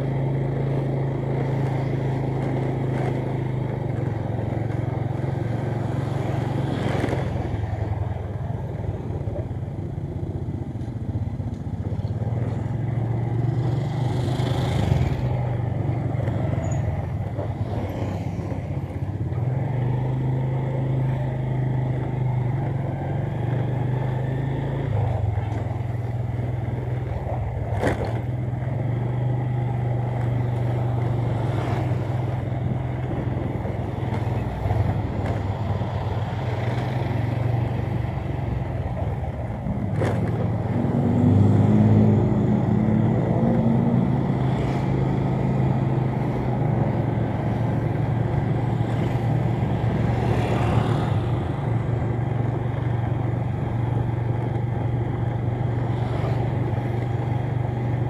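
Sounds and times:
motorbike passing by: 0:12.3 - 0:58.0.

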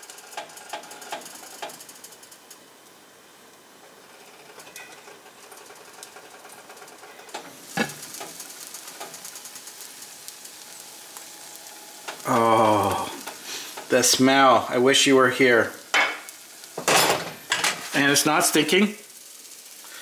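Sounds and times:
omelette sizzling in frying pan: 0:00.0 - 0:20.0
cookware clicks and clunk: 0:16.8 - 0:17.9.

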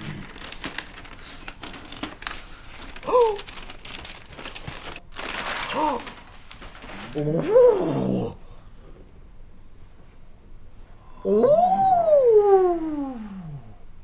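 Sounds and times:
cardboard packaging tearing and rustling: 0:00.0 - 0:07.6
person exclaiming: 0:03.0 - 0:03.5, 0:07.2 - 0:08.4, 0:11.2 - 0:13.7.

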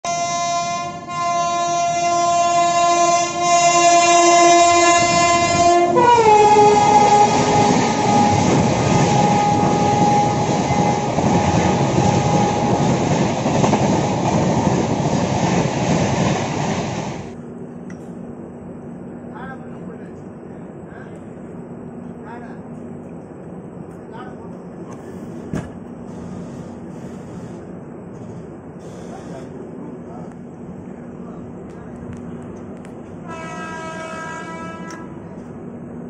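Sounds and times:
train horn chord: 0:00.0 - 0:12.9, 0:33.2 - 0:35.4
train coaches rushing past: 0:03.3 - 0:17.4.

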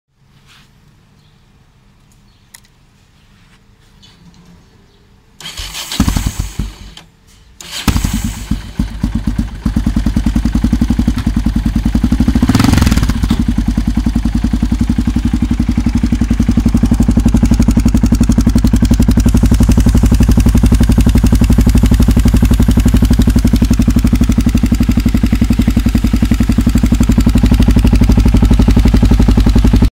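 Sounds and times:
motorcycle engine revving: 0:05.4 - 0:07.0, 0:07.6 - 0:29.9
motorcycle engine starting and idling: 0:05.4 - 0:29.9.

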